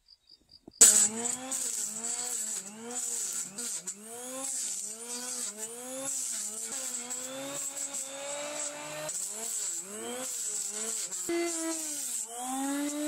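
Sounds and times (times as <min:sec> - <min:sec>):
electric hand planer cutting wood: 0:00.8 - 0:13.0.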